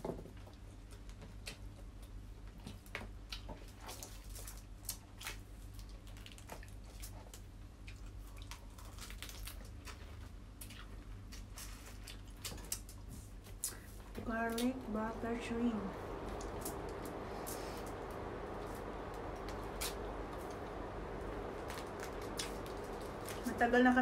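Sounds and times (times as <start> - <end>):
low steady hum: 0.5 - 24.0
wet chewing and smacking: 0.8 - 13.9
shells crackling as peeled: 3.9 - 13.8.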